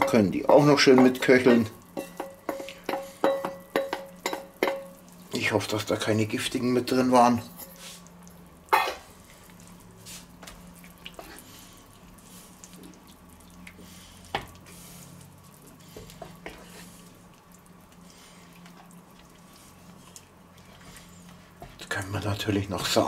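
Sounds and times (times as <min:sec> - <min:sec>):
wooden spoon knocking pan: 0:00.0 - 0:05.0
low steady hum: 0:00.0 - 0:23.0
sauce bubbling in frying pan: 0:00.0 - 0:23.0.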